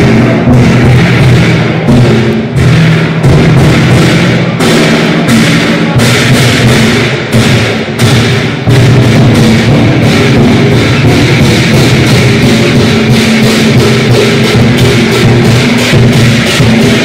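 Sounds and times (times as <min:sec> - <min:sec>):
clashing cymbals: 0:00.0 - 0:17.0
large drum beating fast: 0:00.0 - 0:17.0.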